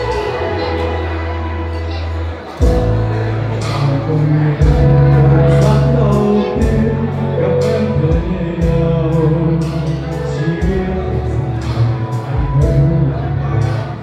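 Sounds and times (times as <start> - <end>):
pop love song with singing: 0.0 - 14.0
sustained bass: 0.0 - 14.0
steady drum beat: 4.6 - 13.1.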